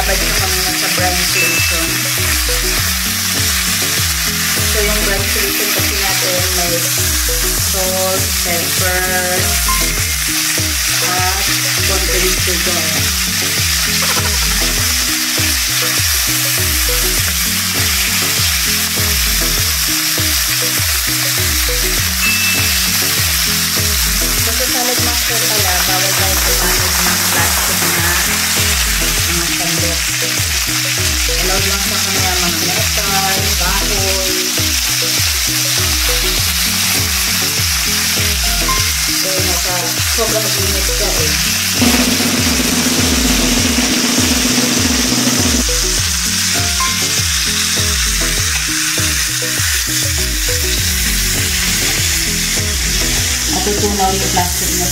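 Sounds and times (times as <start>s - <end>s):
background music with beat: 0.0s - 54.9s
chicken sizzling in skillet: 0.0s - 54.9s.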